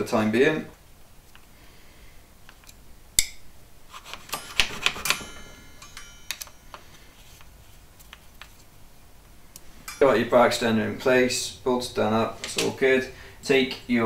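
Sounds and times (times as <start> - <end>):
brief metallic ring: 4.3 - 6.8.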